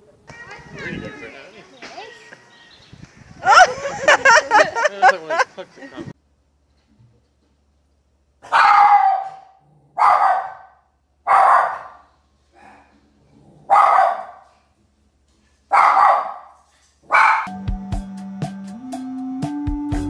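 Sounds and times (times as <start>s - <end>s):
small dog barking: 8.5s - 12.0s, 13.7s - 14.4s, 15.7s - 17.5s.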